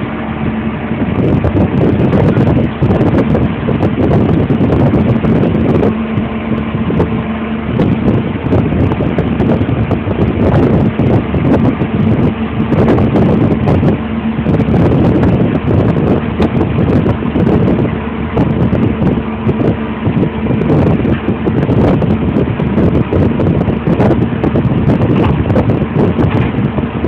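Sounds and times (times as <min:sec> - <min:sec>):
heavy engine rumbling: 0:00.0 - 0:27.0.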